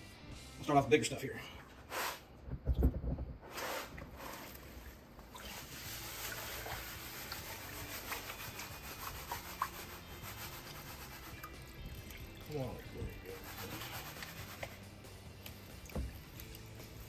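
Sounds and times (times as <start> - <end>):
water sloshing: 3.5 - 17.0
wet gravel rattling in sieve: 3.5 - 17.0.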